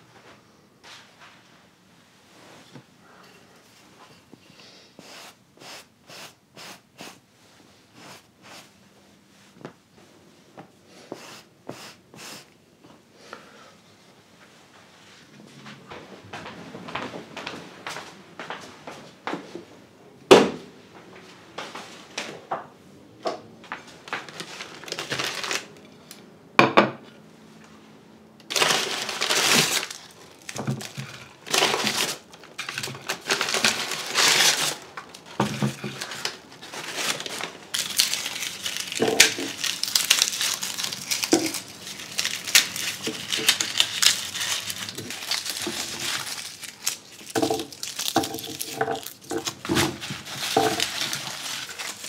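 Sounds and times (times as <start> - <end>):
garlic skins crackling: 24.3 - 25.8, 28.5 - 52.0.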